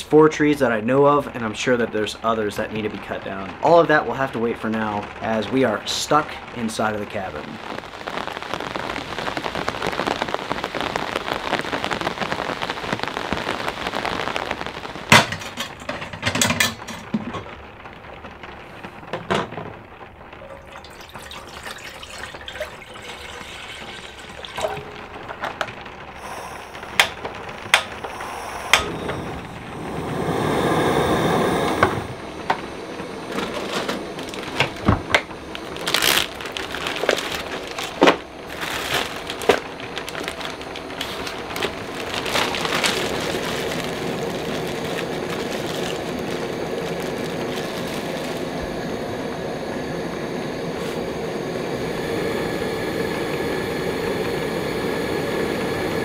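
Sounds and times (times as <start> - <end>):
plastic bag rustling: 13.3 - 30.2, 32.0 - 49.3, 50.8 - 51.1
rushing swell: 26.1 - 34.6.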